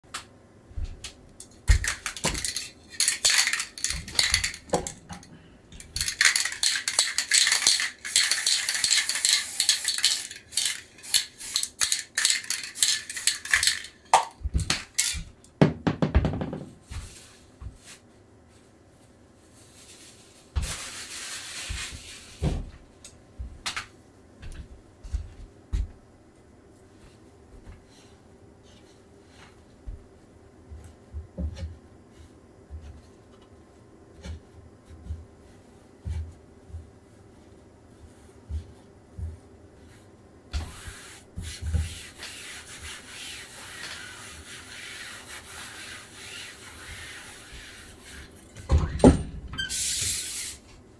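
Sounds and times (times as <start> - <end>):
tools and containers clinking: 1.4 - 15.4.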